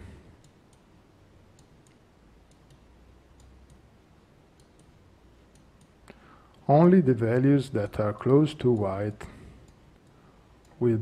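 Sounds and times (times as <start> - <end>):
computer mouse clicks: 1.5 - 3.9, 4.5 - 6.6.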